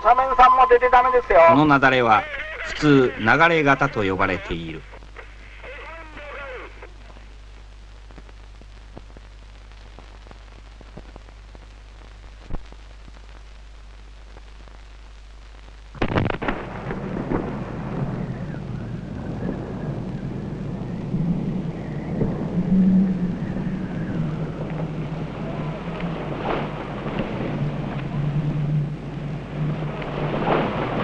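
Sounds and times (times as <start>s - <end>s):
steady low hum: 0.1s - 31.0s
avalanche rumbling: 16.0s - 31.0s.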